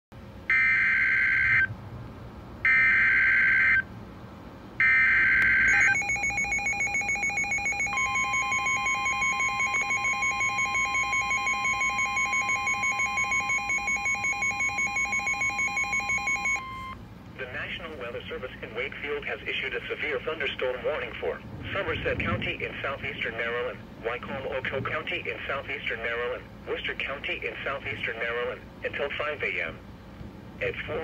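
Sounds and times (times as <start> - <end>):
rapid alarm beeping: 0.5 - 1.7, 2.7 - 3.9, 4.8 - 17.0
digital data tone bursts: 4.8 - 17.0
steady warning alert tone: 4.8 - 17.0.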